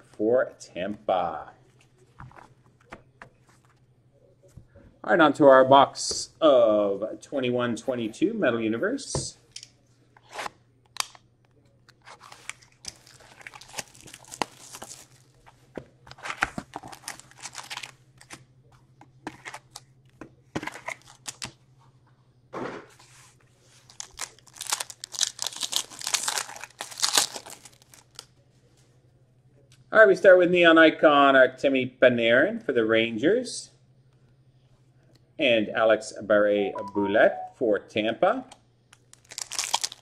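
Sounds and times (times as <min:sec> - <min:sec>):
foil pack tearing and crinkling: 0:12.2 - 0:15.4, 0:16.2 - 0:17.9, 0:23.9 - 0:28.2, 0:39.1 - 0:40.0.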